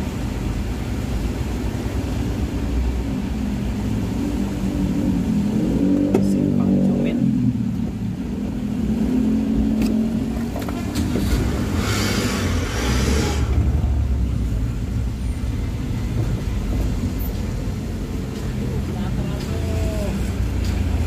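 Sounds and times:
hiss: 11.7s - 13.6s.

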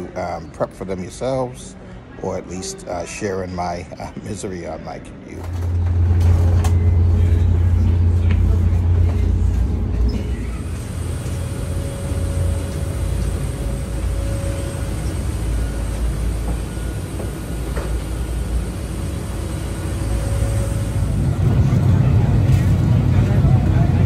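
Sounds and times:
low rumble and hum: 5.4s - 24.0s.

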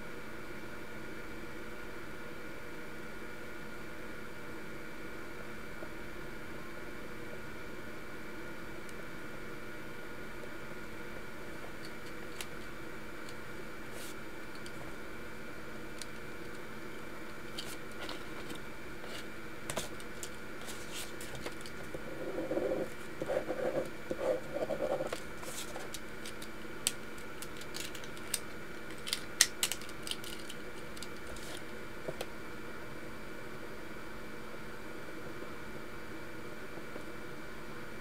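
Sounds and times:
paper sheet rustling: 17.5s - 21.8s, 22.4s - 26.5s, 27.2s - 31.6s.

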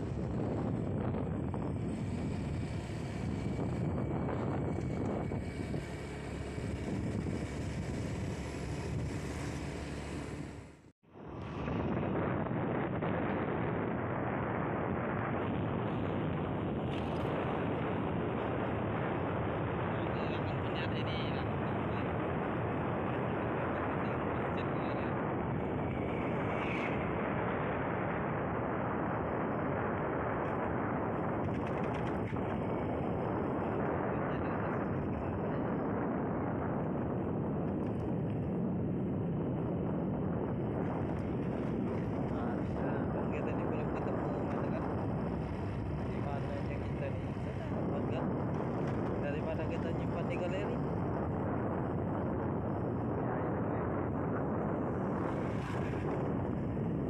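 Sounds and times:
moving vehicle running noise: 0.0s - 57.0s
wind buffeting microphone: 0.0s - 57.0s.

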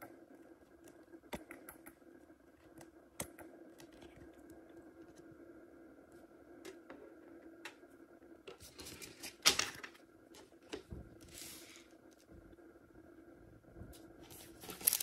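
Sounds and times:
foil packs crinkling: 14.2s - 15.0s.

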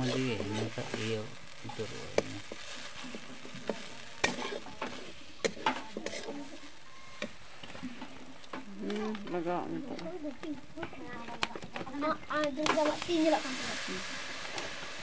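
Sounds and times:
onions sizzling in oil: 0.0s - 15.0s
metal spatula scraping pan: 3.2s - 7.3s.

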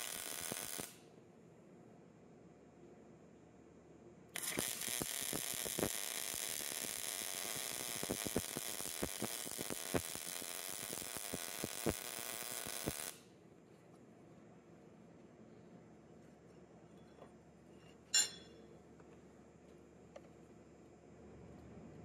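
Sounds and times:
welding arc hissing and popping: 0.0s - 1.0s, 4.4s - 13.3s.

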